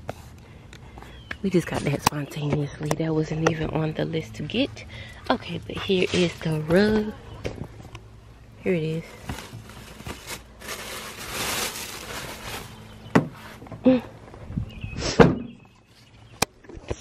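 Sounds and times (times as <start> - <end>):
plastic bag rustling: 8.6 - 13.6.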